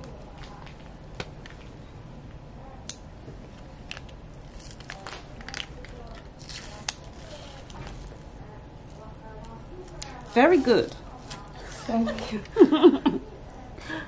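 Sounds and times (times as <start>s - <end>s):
plastic packaging crinkling: 3.9s - 8.3s.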